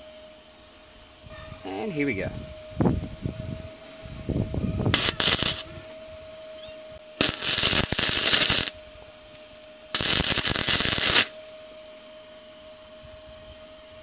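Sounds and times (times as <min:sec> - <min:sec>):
welder arc crackling: 0:04.9 - 0:06.0, 0:07.1 - 0:08.8, 0:09.9 - 0:11.4.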